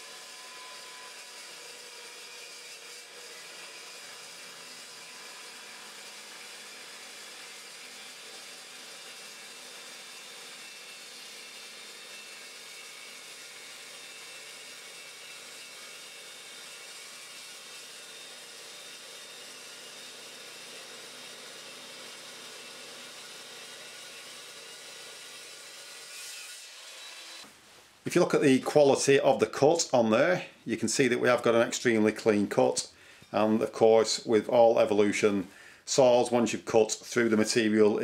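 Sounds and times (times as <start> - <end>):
chop saw cutting steel: 0.0 - 27.5.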